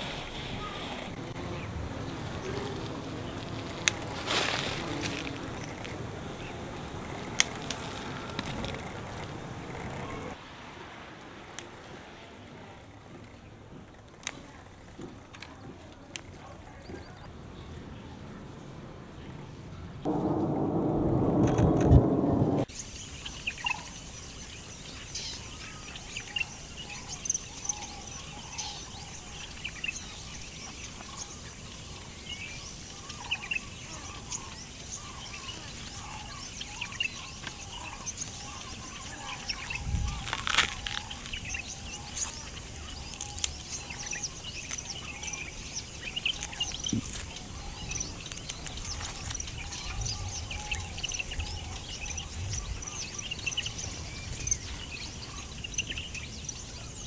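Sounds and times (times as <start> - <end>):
small birds chirping: 0.0 - 10.4, 22.6 - 57.0
low thump: 20.1 - 22.6.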